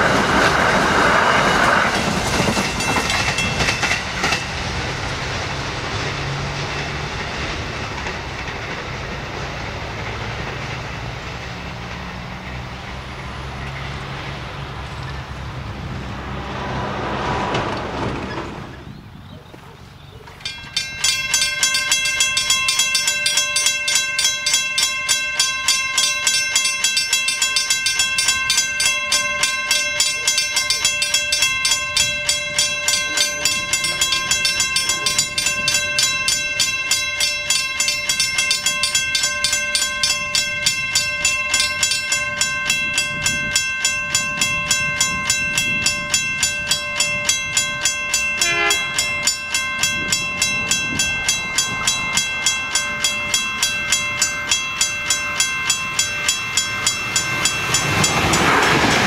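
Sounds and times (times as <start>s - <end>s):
level crossing bells ringing: 1.7s - 5.5s, 20.4s - 59.0s.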